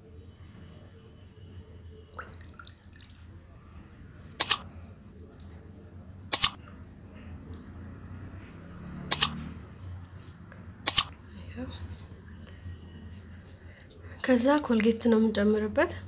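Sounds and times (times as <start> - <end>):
faint room noise: 0.0 - 16.0
sharp double clicks: 4.4 - 4.6, 6.3 - 6.6, 9.1 - 9.4, 10.8 - 11.2.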